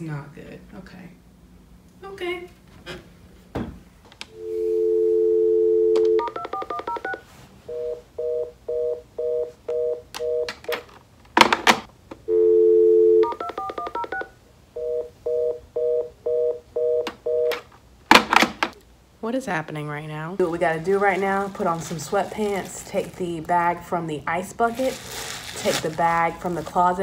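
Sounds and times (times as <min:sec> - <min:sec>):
telephone busy tone beeping: 0:04.4 - 0:10.5, 0:12.3 - 0:17.5
telephone dial tone: 0:04.4 - 0:10.8, 0:12.3 - 0:17.6
touch-tone digits: 0:12.4 - 0:17.6.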